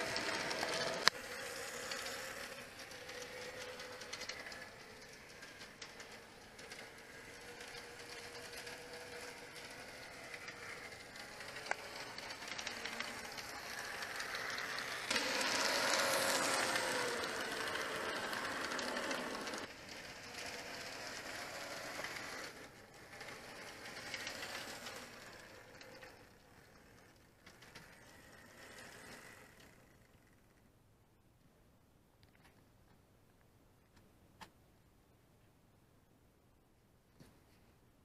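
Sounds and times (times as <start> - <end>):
model train motor whirring: 0.0 - 30.6
wheels rattling over rails: 0.0 - 30.6.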